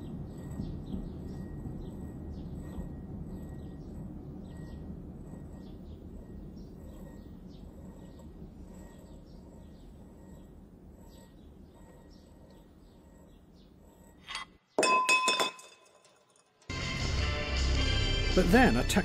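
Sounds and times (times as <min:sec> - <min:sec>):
low steady rumble: 0:00.0 - 0:14.2
faint birds chirping: 0:00.0 - 0:14.8.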